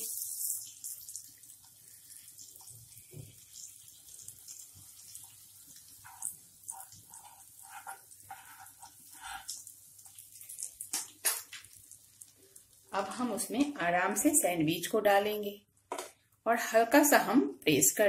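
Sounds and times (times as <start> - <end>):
butter sizzling in a pan: 0.0 - 13.6
steel spoon scraping a pan: 6.0 - 9.6.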